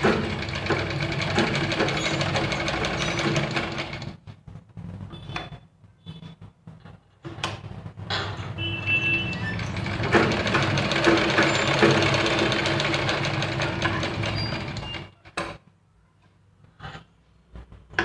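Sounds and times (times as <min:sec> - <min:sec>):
sewing machine stitching: 0:00.0 - 0:04.3, 0:09.0 - 0:15.6.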